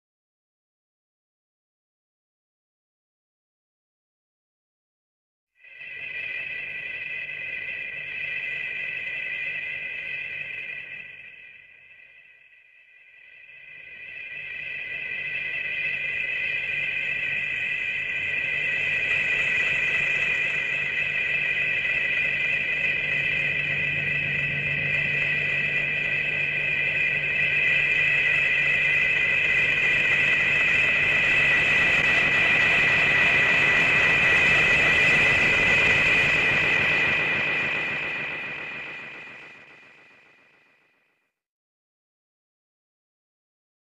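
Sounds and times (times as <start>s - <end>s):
low hum: 22.6s - 40.5s.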